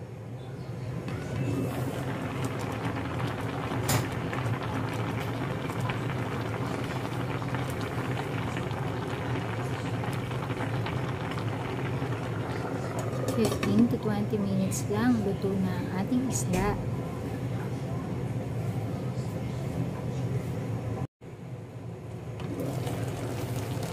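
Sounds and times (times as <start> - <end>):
steady low hum: 0.0 - 23.9
pot bubbling at a boil: 1.1 - 17.2, 22.3 - 23.9.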